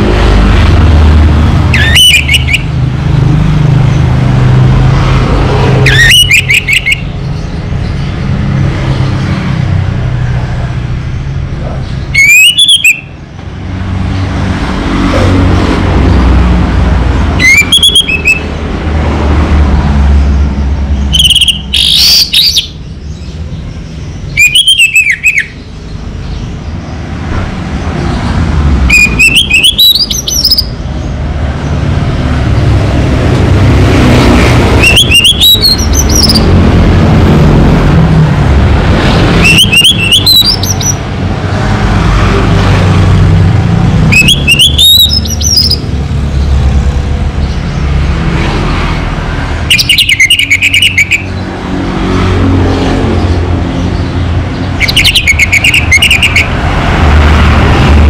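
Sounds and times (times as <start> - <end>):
thrush singing whistled phrases: 1.7 - 2.7, 5.9 - 7.1, 12.1 - 13.2, 17.4 - 18.5, 21.1 - 22.8, 24.3 - 25.6, 28.9 - 30.7, 34.8 - 36.5, 39.4 - 41.0, 44.1 - 45.8, 49.7 - 51.4, 54.8 - 56.5.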